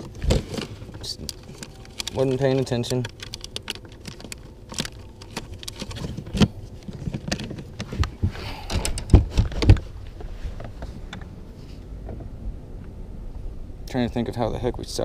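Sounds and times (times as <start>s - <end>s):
packages rustling: 0.0s - 10.3s
fishing tackle clicking and knocking: 1.2s - 5.9s
heavier thumps: 7.7s - 11.2s.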